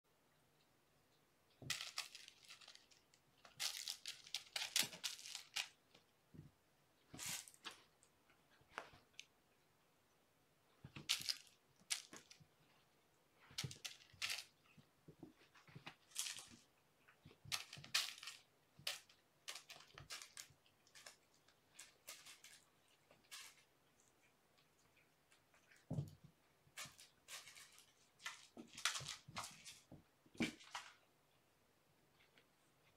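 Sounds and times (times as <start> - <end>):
cats rustling and crunching: 1.5 - 9.6, 10.7 - 32.9.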